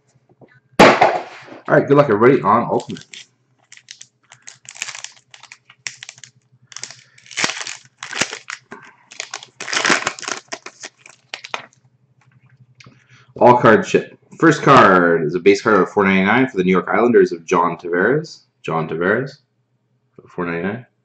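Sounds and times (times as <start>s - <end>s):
foil wrapper crinkling: 2.8s - 11.8s.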